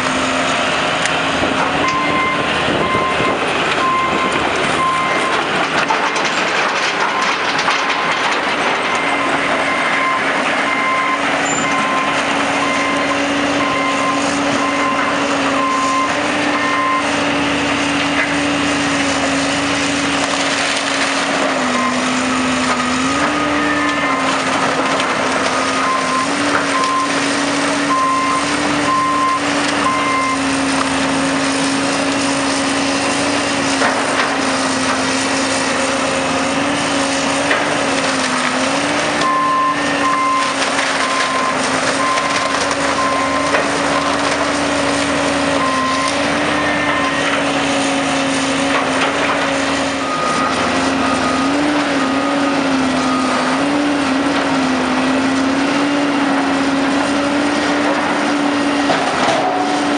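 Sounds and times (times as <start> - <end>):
diesel machinery engines running: 0.0 - 59.9
backup alarm beeping: 1.8 - 5.3, 8.9 - 17.1, 27.9 - 30.5
wood cracking and falling: 5.1 - 9.6, 19.4 - 27.9, 30.4 - 52.0, 55.2 - 59.9.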